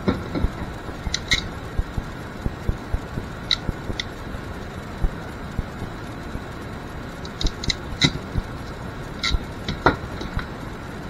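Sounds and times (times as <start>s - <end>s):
wire and metal terminals tapping: 0.0s - 4.2s
crimping tool clicks: 3.5s - 4.1s.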